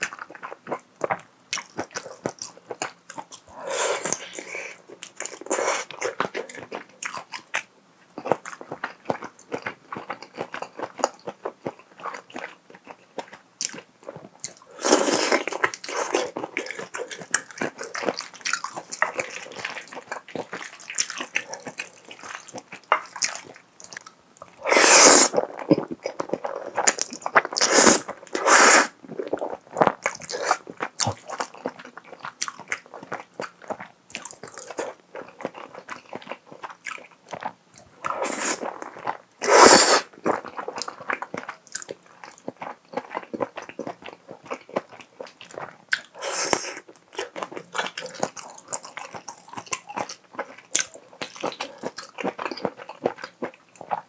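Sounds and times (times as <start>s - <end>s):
wet chewing and mouth clicks: 0.0s - 54.0s
slurping: 24.6s - 29.4s, 38.0s - 40.2s, 46.2s - 46.9s.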